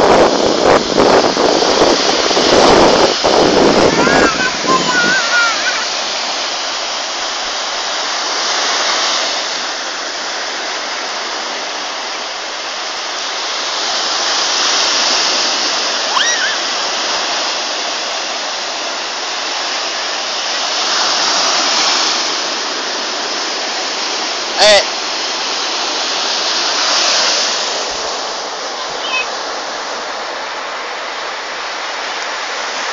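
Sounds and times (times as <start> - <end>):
surf washing onto beach: 0.0 - 32.9
short high-pitched cry: 4.0 - 5.9, 16.1 - 16.7.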